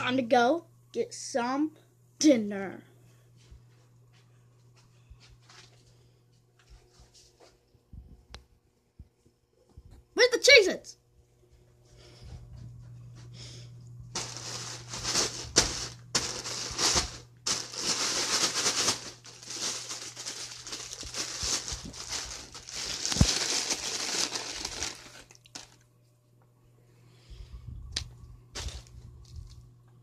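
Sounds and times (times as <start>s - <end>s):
plastic bag crinkling: 14.1s - 25.8s, 28.5s - 29.6s.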